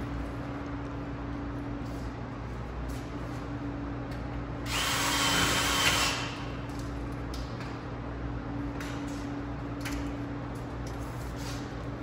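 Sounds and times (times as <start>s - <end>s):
power drill driving screw: 4.7s - 6.2s.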